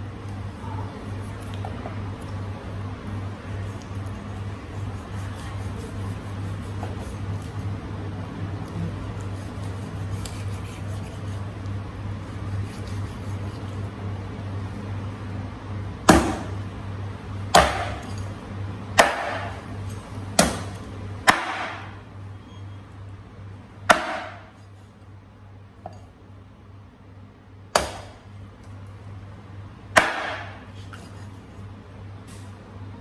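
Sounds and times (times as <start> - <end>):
cleaver chopping bone on wood: 16.1 - 16.6, 17.5 - 18.2, 19.0 - 19.6, 20.4 - 22.0, 23.9 - 24.5, 27.7 - 28.2, 30.0 - 30.6.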